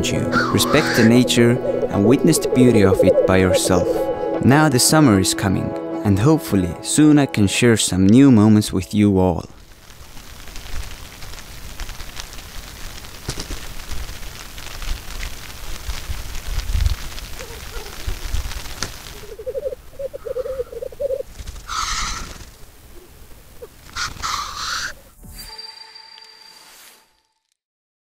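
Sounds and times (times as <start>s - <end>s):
wind rumbling on microphone: 0.0s - 4.2s, 13.7s - 21.9s
grouse bubbling song: 0.0s - 4.4s, 19.1s - 22.0s
grouse hissing sneeze calls: 24.0s - 24.9s.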